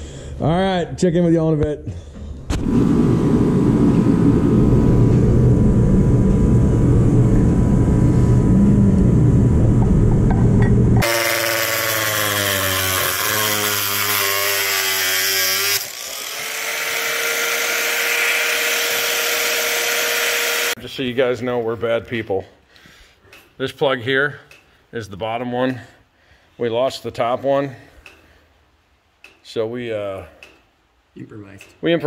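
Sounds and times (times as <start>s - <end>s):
loud low rumbling: 2.4s - 11.0s
power tool on cast iron: 11.0s - 20.8s.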